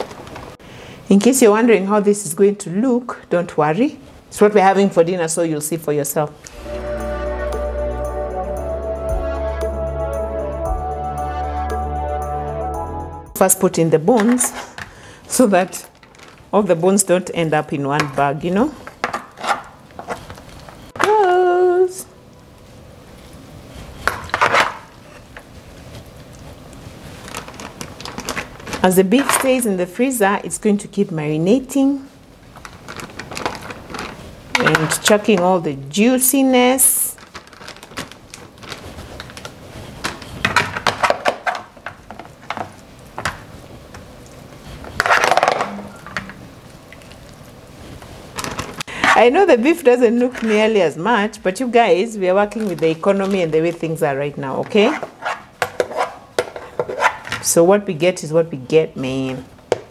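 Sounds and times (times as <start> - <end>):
plastic bag handling noise: 15.5 - 16.8, 24.2 - 29.6, 32.4 - 35.4, 36.6 - 48.9.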